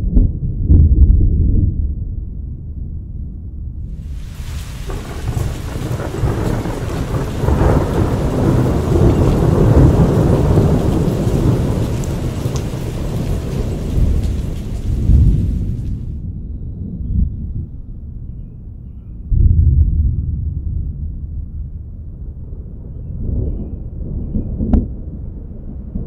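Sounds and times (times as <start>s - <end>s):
rolling thunder: 0.0s - 26.0s.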